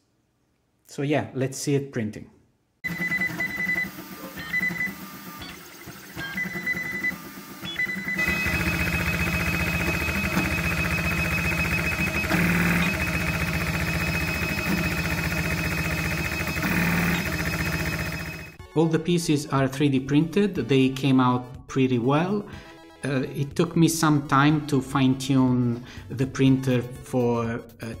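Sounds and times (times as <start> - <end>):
stepper motors whining: 2.9 - 18.6
steady whir: 3.7 - 18.6.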